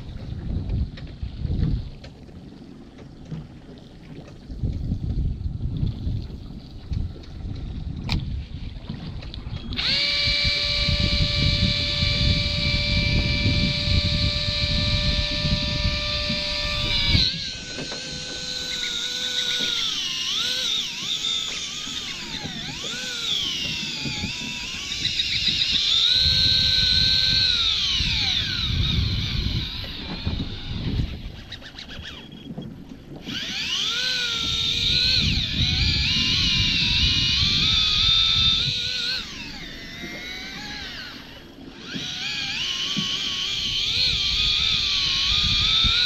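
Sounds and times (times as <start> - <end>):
low wind rumble: 0.0 - 2.7, 3.5 - 18.6, 22.1 - 42.0, 43.4 - 46.0
electric reel motor whining: 9.5 - 46.0.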